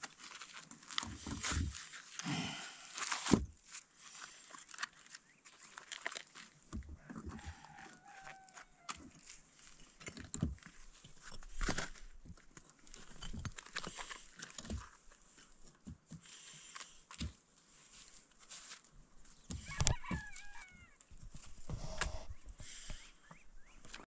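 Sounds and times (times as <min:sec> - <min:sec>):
stones knocking and scraping: 0:04.6 - 0:17.4
chicken calling: 0:07.0 - 0:09.0, 0:19.6 - 0:21.0.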